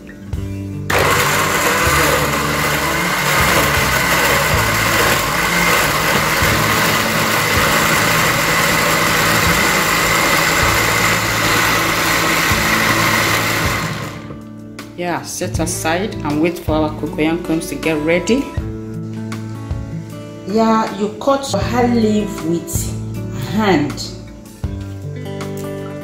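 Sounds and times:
blender motor whine: 0.9s - 14.4s.

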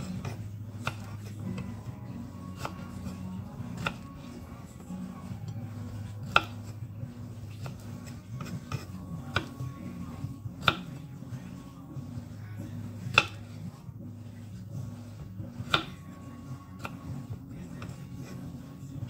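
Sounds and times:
knife chopping on wooden board: 0.0s - 1.2s, 2.6s - 4.1s, 6.0s - 6.8s, 8.4s - 9.6s, 10.6s - 11.1s, 13.0s - 13.6s, 15.6s - 16.0s, 16.8s - 17.1s.

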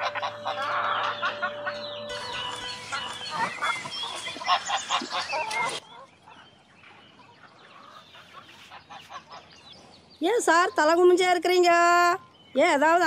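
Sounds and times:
chickens clucking and squawking: 0.0s - 9.9s.

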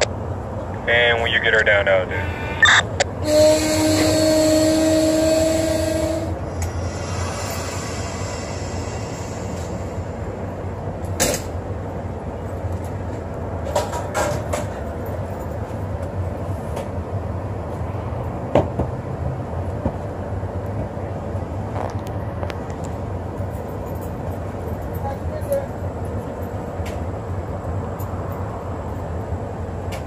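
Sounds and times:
train rumbling past: 0.0s - 30.0s
steady tone: 6.1s - 11.1s
wheels clanking on rail joints: 10.9s - 17.0s.

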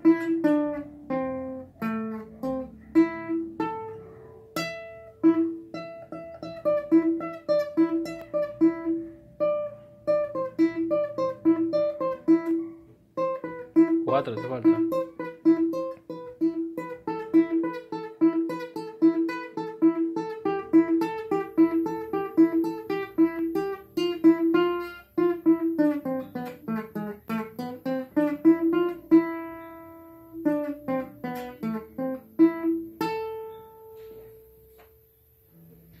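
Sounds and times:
nylon-string guitar plucked notes: 0.0s - 35.1s.

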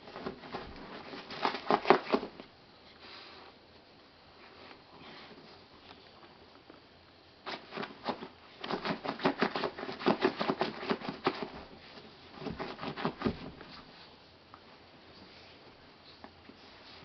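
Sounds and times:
dogs play-fighting clicks and snaps: 7.5s - 11.6s.

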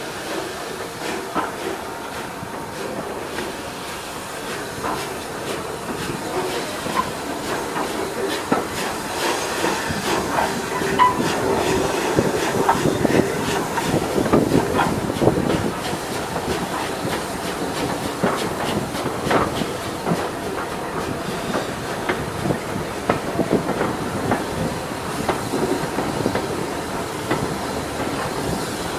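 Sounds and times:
steam hissing: 0.0s - 28.9s
train wheels clicking over rail joints: 0.0s - 28.9s
wheel squeals: 10.7s - 12.0s.

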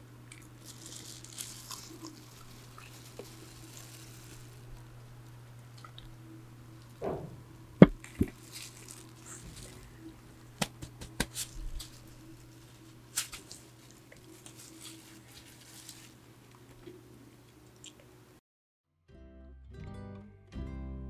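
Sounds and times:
electric fan hum: 0.0s - 18.4s
rustling of gloves: 0.6s - 5.1s, 7.0s - 16.4s.

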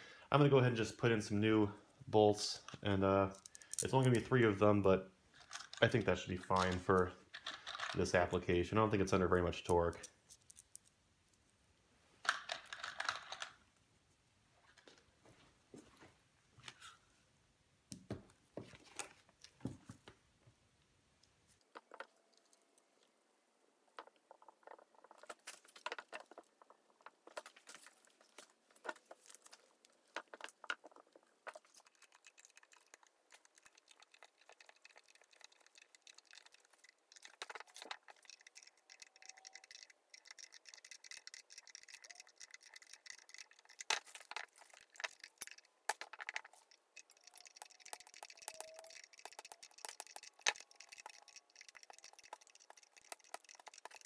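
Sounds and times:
tools clicking on metal bolts: 31.6s - 54.0s.

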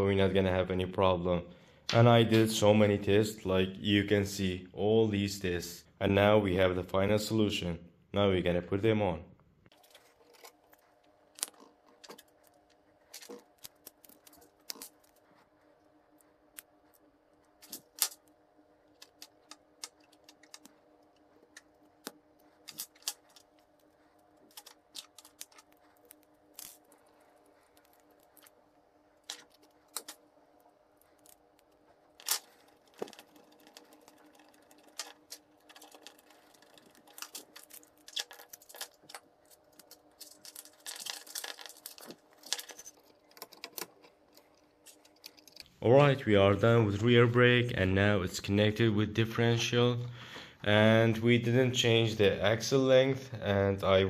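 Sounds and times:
faint steady hum: 0.0s - 54.0s
small parts clicking and tapping: 9.7s - 15.4s, 16.1s - 18.3s, 18.9s - 28.6s, 29.2s - 30.2s, 31.0s - 45.8s.

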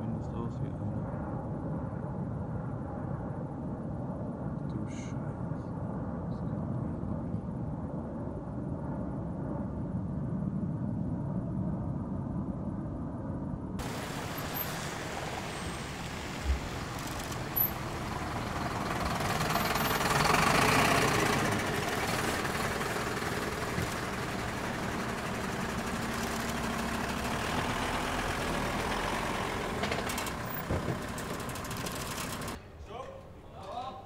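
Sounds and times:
truck engines running: 13.8s - 33.5s.

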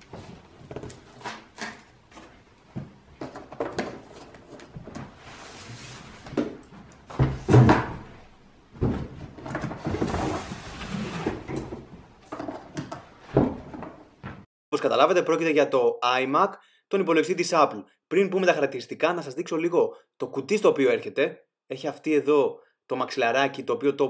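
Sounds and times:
cardboard scraping and rustling: 8.8s - 12.6s.

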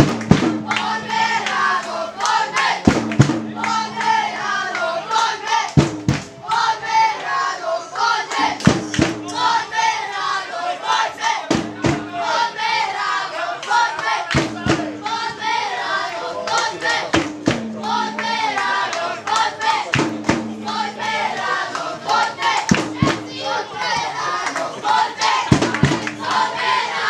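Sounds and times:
loud drum beats: 0.0s - 6.7s, 8.3s - 10.0s, 11.4s - 12.7s, 14.0s - 15.6s, 16.9s - 24.2s, 24.8s - 27.0s
crowd singing and chanting: 0.0s - 27.0s.

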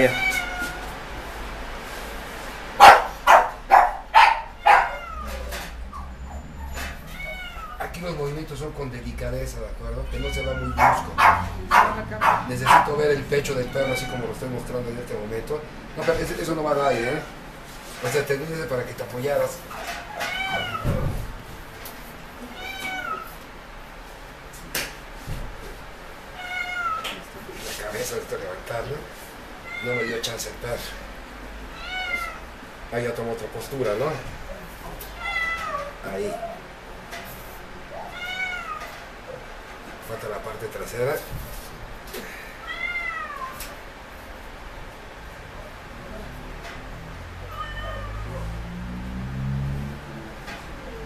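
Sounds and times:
dog barking: 2.8s - 5.0s, 10.8s - 13.0s
puppy whining: 2.8s - 8.0s, 10.0s - 14.4s, 34.6s - 36.8s, 47.3s - 48.6s.

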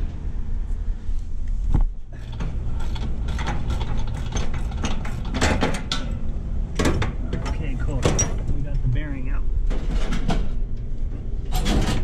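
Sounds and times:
metal clicking and knocking: 2.2s - 6.2s
low rumble: 6.2s - 11.5s.

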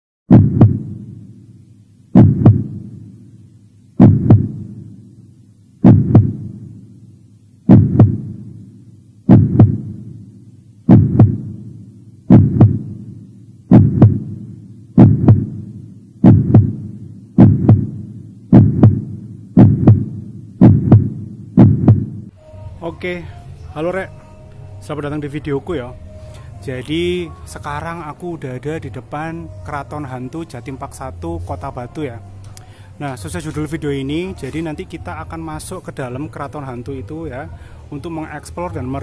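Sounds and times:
heartbeat double thump: 0.3s - 1.2s, 2.2s - 3.0s, 4.0s - 4.9s, 5.8s - 6.8s, 7.7s - 8.6s, 9.3s - 10.2s, 10.9s - 11.7s, 12.3s - 22.3s.

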